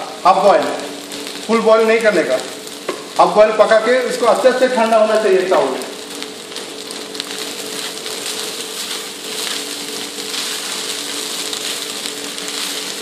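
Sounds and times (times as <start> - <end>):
rice sizzling in a wok: 0.0 - 13.0
wooden spatula stirring: 7.6 - 13.0.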